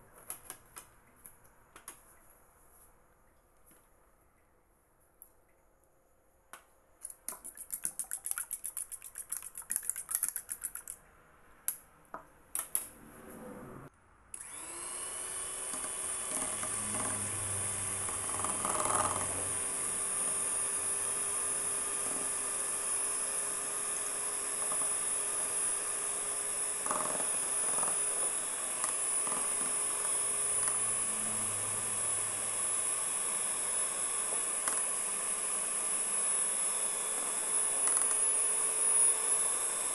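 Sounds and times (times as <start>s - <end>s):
fork beating eggs in bowl: 7.0s - 11.0s
electric hand mixer whining: 14.4s - 39.9s.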